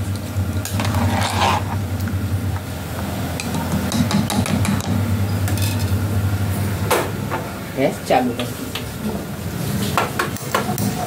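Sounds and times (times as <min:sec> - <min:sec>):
ladle scraping metal pot: 0:00.6 - 0:01.9
low hum: 0:04.6 - 0:07.8.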